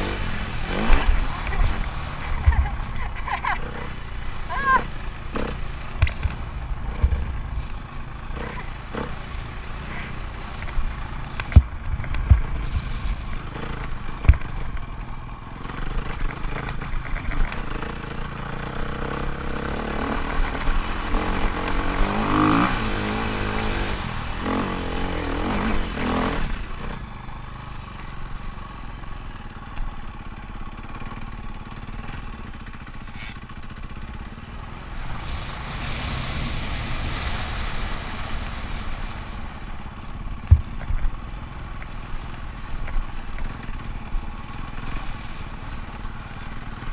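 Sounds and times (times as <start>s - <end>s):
low rumble of microphone shaking: 0.0s - 3.7s, 4.5s - 9.2s, 10.5s - 15.1s
dirt bike engine revving: 0.0s - 27.5s.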